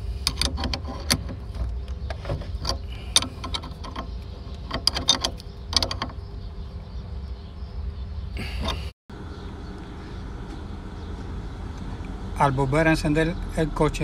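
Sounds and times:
wrench metallic clicks: 0:00.2 - 0:01.5, 0:02.1 - 0:06.2.

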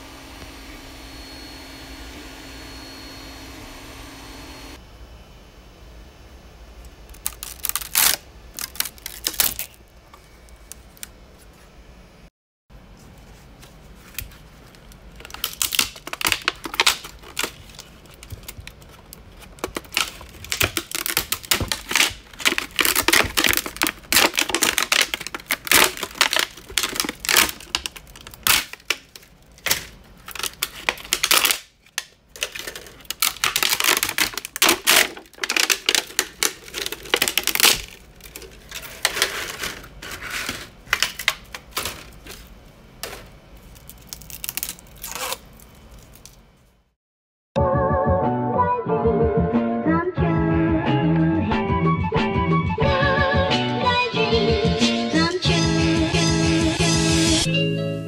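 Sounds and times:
plastic cracking and clicking: 0:07.1 - 0:09.8, 0:14.7 - 0:39.9, 0:40.9 - 0:42.4.

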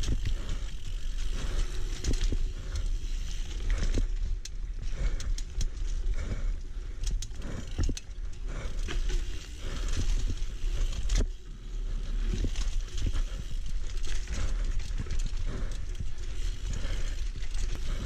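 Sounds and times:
bike knocking and rattling: 0:00.0 - 0:18.0
bike tyres rumbling on dirt trail: 0:00.0 - 0:18.0.

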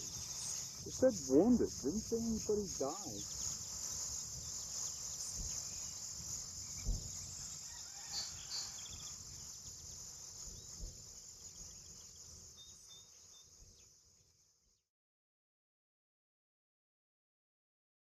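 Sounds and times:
bird chirps: 0:00.0 - 0:07.6
crickets and insects chirring: 0:00.0 - 0:14.8.

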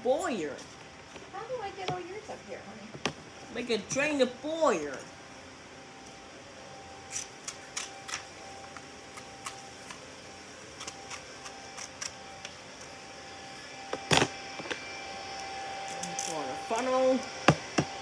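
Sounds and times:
scissors snipping paper: 0:10.8 - 0:12.2.

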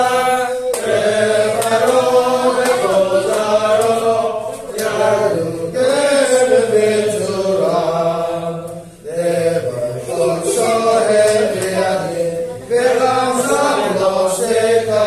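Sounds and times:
congregation singing in unison: 0:00.0 - 0:15.0.

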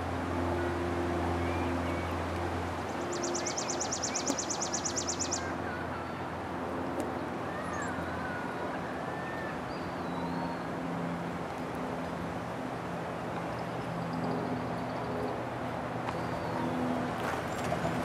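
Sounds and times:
distant traffic hum: 0:00.0 - 0:18.0
birds chirping and whistling: 0:03.1 - 0:05.5.

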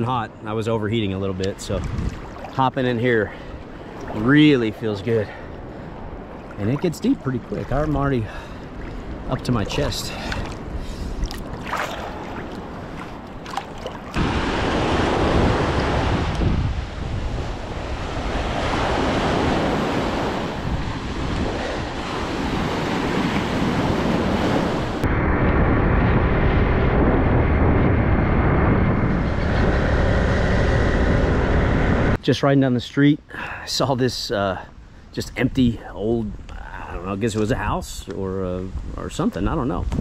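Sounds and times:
wind buffeting microphone: 0:01.3 - 0:32.2, 0:36.2 - 0:40.0
water sloshing and splashing: 0:01.5 - 0:15.1
small surf breaking: 0:05.8 - 0:16.5
motorbike drone: 0:25.0 - 0:32.2.

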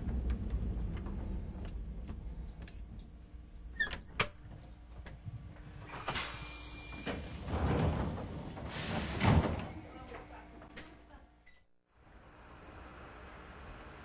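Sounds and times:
hiss of air: 0:08.5 - 0:09.3.

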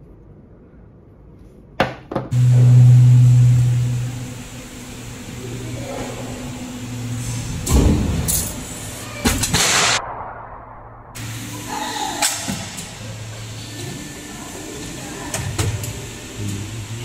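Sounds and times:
low machine hum with hiss: 0:02.3 - 0:10.0, 0:11.2 - 0:17.0
machinery clattering: 0:02.3 - 0:10.1, 0:11.2 - 0:17.0.

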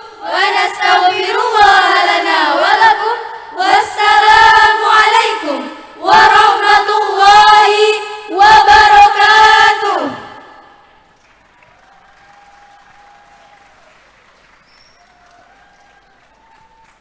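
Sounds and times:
women's choir singing: 0:00.0 - 0:10.9.

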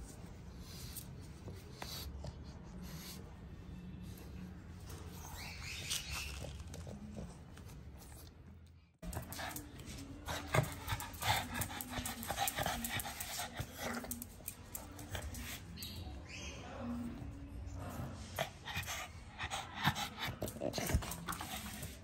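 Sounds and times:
dog panting: 0:09.0 - 0:16.0, 0:18.2 - 0:22.0.

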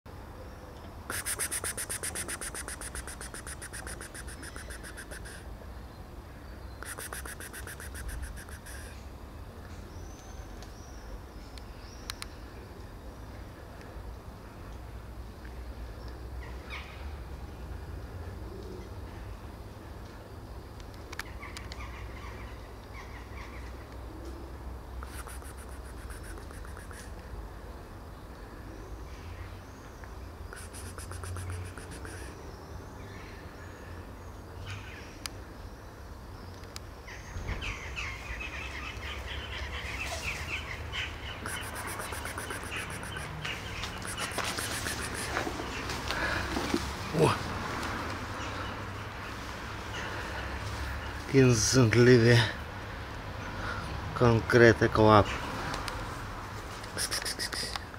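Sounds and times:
small birds chirping: 0:01.1 - 0:13.3, 0:28.8 - 0:47.4.

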